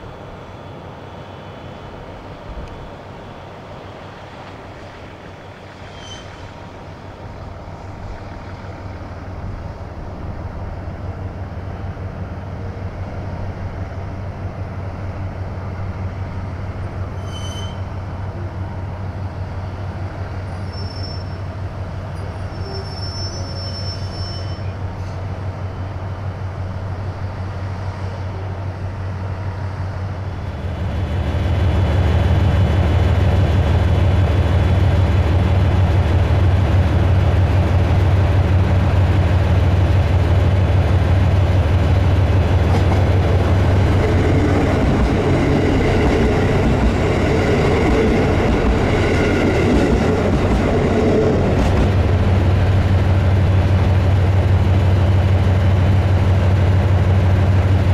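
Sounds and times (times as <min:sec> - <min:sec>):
diesel railcar engine humming: 0:00.0 - 0:57.9.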